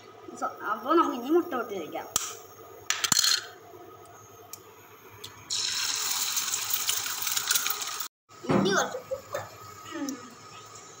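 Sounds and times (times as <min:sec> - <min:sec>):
egg sizzling in hot oil: 0:04.5 - 0:08.2.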